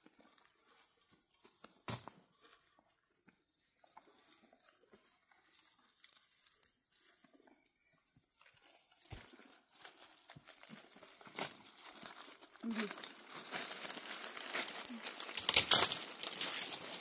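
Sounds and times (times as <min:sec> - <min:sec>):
rustling and crinkling: 0:00.0 - 0:17.0
sharp crackles: 0:11.0 - 0:17.0.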